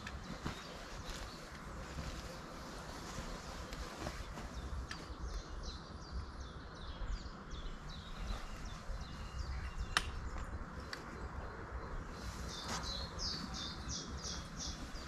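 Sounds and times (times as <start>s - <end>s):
songbird chirping: 0.0s - 15.0s
sharp click: 9.9s - 11.1s.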